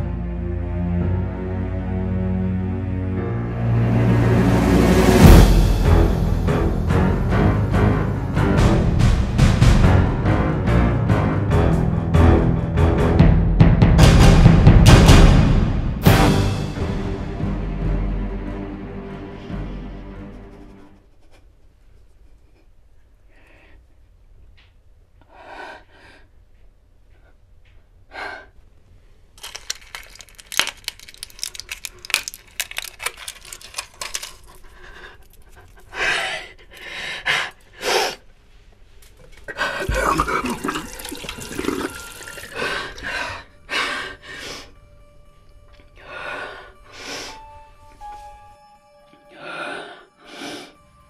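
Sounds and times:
steady music tones: 0.0 - 21.0, 41.4 - 51.0
pills popping from blister pack: 29.4 - 34.8
sink tap running: 40.0 - 42.6.

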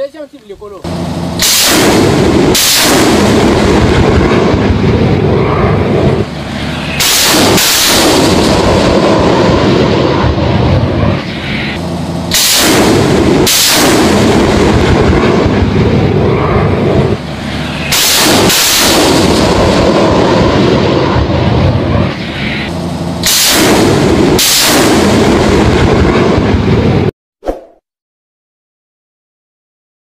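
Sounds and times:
sharp cracks: 1.3 - 4.9, 6.2 - 15.9, 17.2 - 21.3, 22.0 - 26.6
roar of rockets launching: 1.3 - 27.1.

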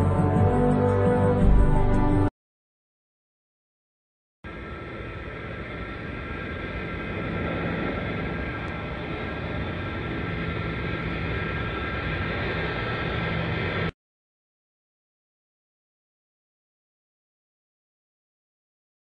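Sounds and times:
held whining tones: 4.5 - 13.9
vehicle engine noise: 4.5 - 13.9.

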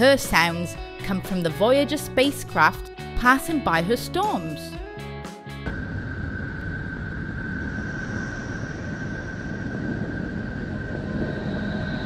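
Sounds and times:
steady rushing noise: 5.6 - 12.0.

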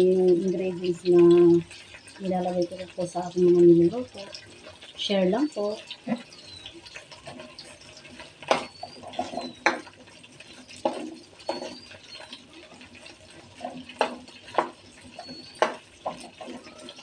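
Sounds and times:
shrimp frying in oil: 0.0 - 17.0
spatula scraping a wok: 5.6 - 17.0.

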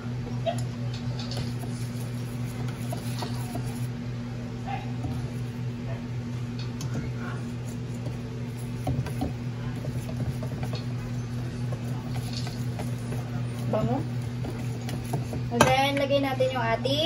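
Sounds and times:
whisk stirring batter: 1.0 - 4.0, 4.9 - 5.8, 6.6 - 16.3.

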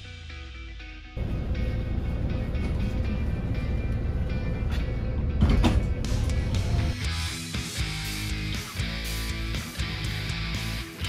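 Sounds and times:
background music: 0.0 - 11.0
bus rumble: 1.2 - 8.1.

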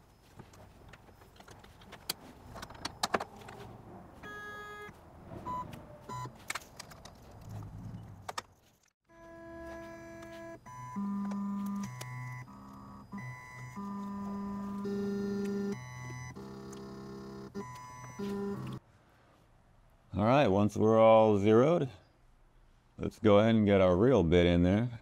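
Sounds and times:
stepper motors whining: 9.1 - 18.8.

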